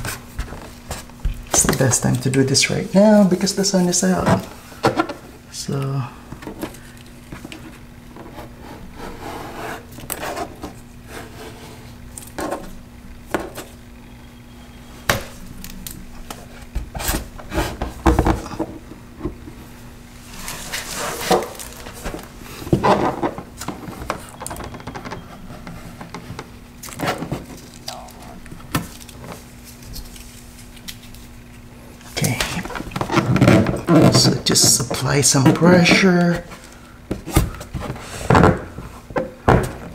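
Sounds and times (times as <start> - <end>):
faint steady hum: 0.0 - 39.9
rubbing and rustling: 20.1 - 24.2.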